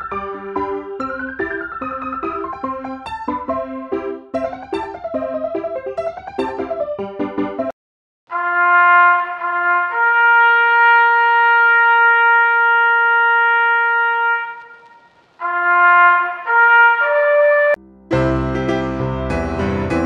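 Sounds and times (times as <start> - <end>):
solo trumpet: 8.3 - 17.8.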